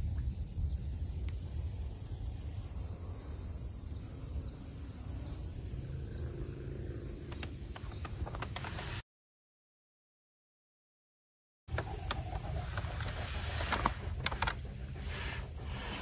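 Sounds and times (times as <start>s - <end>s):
insects chirring: 0.0s - 9.0s
wind rumble on microphone: 0.0s - 9.0s.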